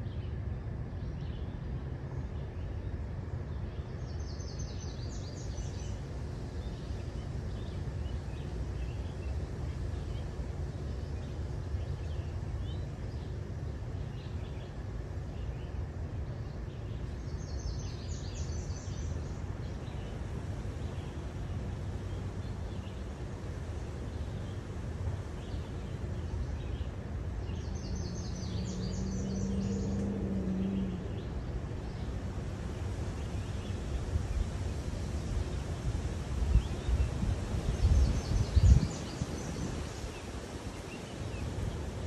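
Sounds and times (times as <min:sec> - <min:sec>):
car driving slowly: 0:19.2 - 0:37.5
birds chirping: 0:25.4 - 0:35.8.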